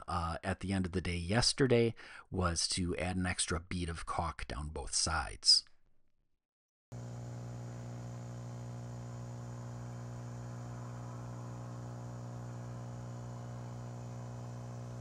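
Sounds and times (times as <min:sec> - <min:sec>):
air pump humming: 0:06.9 - 0:15.0.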